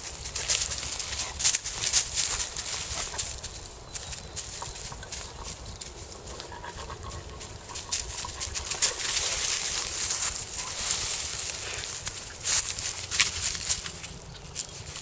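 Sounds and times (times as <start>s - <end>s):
footsteps crunching dry leaves: 0.0s - 15.0s.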